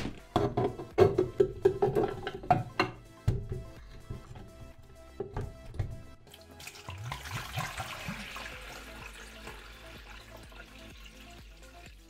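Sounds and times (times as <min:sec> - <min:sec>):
water pouring and splashing: 0:06.2 - 0:12.0.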